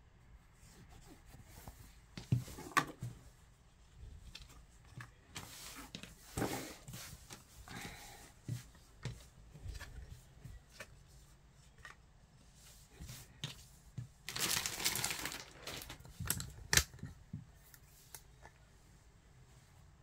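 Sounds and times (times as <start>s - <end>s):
fabric rustling: 14.2s - 16.2s.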